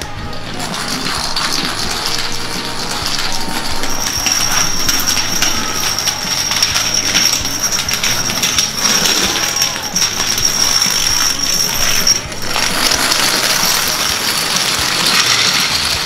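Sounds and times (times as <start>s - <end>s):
dominoes clattering: 0.0s - 16.0s.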